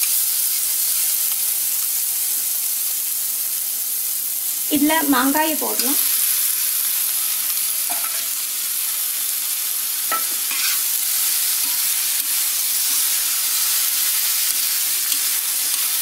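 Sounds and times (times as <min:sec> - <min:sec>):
food sizzling in hot oil: 0:00.0 - 0:16.0
spatula clinking and scraping pan: 0:07.6 - 0:08.4, 0:10.1 - 0:10.9, 0:11.6 - 0:13.6.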